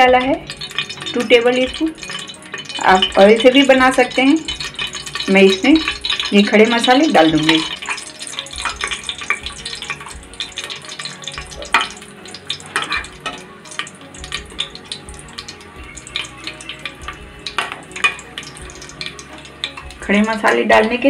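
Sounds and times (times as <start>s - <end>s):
spices sizzling in ghee: 0.0s - 21.0s
steel spoon scraping pot: 0.5s - 19.9s.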